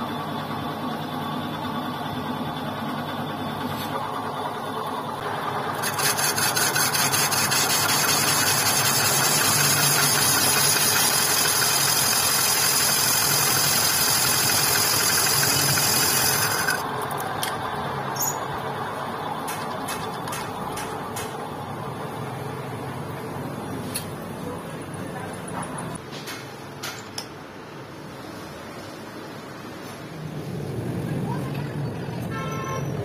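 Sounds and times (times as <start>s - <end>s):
lathe running: 4.1s - 17.3s
cutting tool scraping metal drum: 5.8s - 16.8s.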